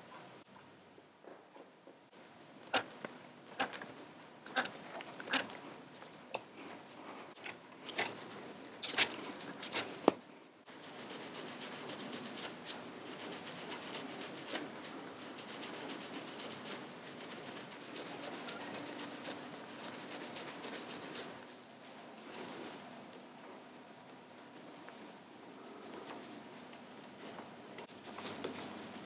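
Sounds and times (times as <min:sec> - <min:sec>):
pad rubbing back and forth: 0:10.7 - 0:21.4.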